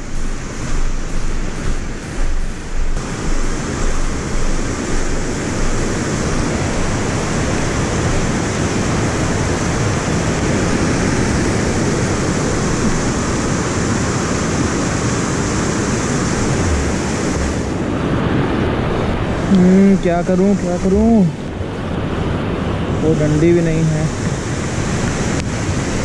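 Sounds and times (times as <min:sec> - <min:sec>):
stream rushing: 0:00.0 - 0:26.0.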